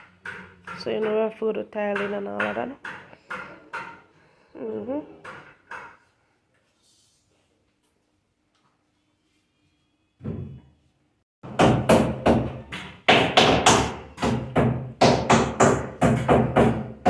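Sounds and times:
hammer driving nails into wood: 0:11.5 - 0:17.0.

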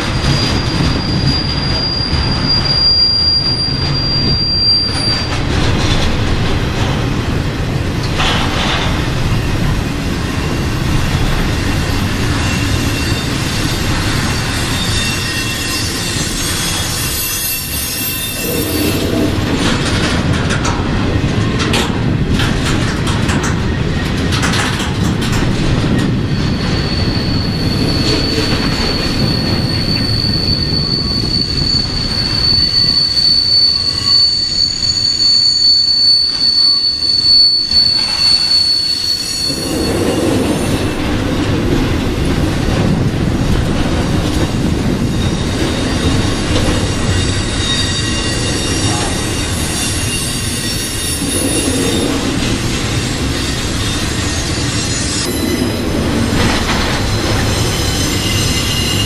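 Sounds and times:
train wheels rumbling on rail: 0:00.0 - 0:59.0
high wheel squeal: 0:00.1 - 0:06.2, 0:10.4 - 0:20.1, 0:26.0 - 0:41.4, 0:44.4 - 0:59.0.

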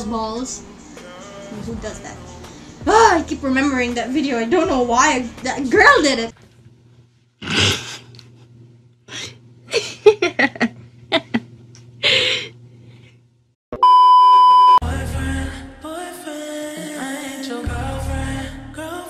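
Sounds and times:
test-tone beep: 0:13.8 - 0:14.8.

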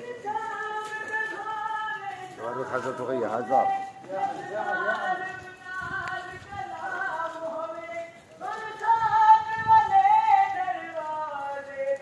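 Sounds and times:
person chanting a lament: 0:00.0 - 0:08.8.

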